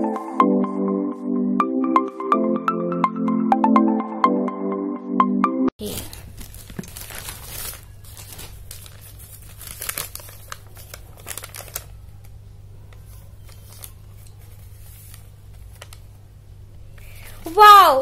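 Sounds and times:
paper rustling: 5.8s - 12.4s, 13.0s - 16.2s
plastic packaging crinkling and tearing: 5.8s - 12.4s, 13.1s - 16.0s.

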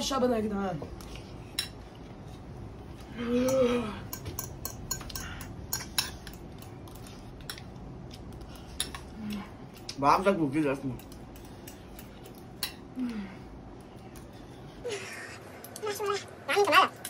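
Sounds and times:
cutlery clinking and scraping bowls: 3.4s - 7.7s, 8.4s - 9.1s.

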